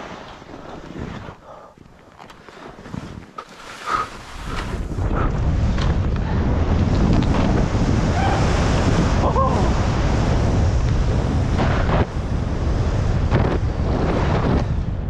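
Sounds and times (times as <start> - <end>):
skis hissing through snow: 2.4 - 5.0
wind buffeting microphone: 2.7 - 15.0.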